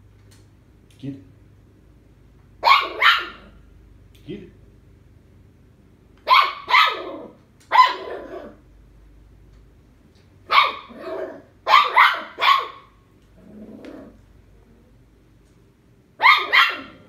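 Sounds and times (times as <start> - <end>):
puppy barking: 2.6 - 3.6, 6.2 - 8.6, 10.5 - 13.0, 16.2 - 17.0.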